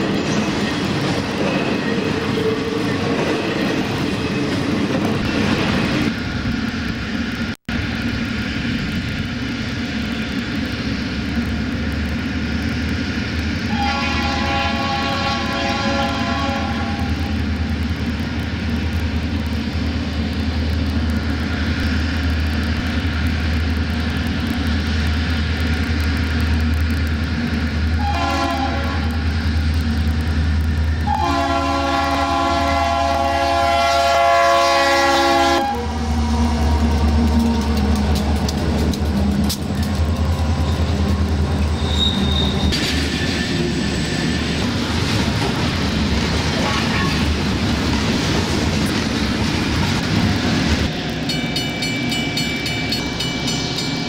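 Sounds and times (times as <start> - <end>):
diesel engines rumbling: 0.0 - 51.3
locomotive rolling past on rails: 0.0 - 54.0
locomotive horn blasts: 13.7 - 17.3, 28.0 - 29.2, 31.0 - 36.2.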